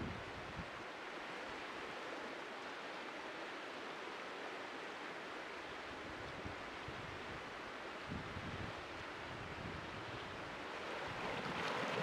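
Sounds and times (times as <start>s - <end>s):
river rushing over stones: 10.4s - 12.0s.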